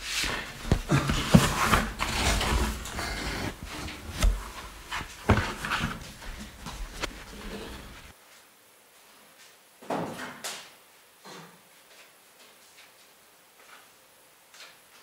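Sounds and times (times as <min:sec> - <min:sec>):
cardboard scraping and rustling: 0:00.0 - 0:08.1.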